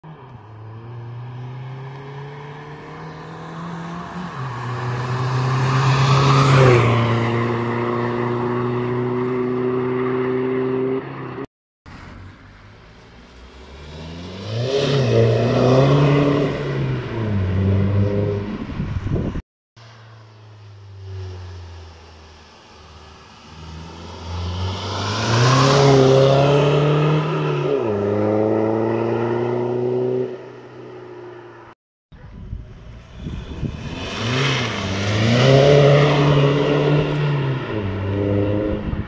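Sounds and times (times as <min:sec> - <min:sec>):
diesel car driving past: 0:00.1 - 0:19.1, 0:19.8 - 0:31.7.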